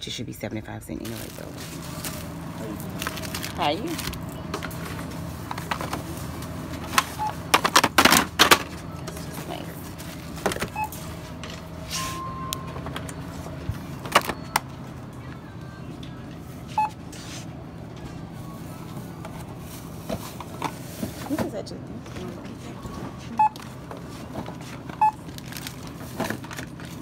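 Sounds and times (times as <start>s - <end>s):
steady store hum: 0.0s - 27.0s
package rustling and clatter: 1.0s - 8.7s, 23.6s - 27.0s
checkout scanner beeping: 1.1s - 27.0s.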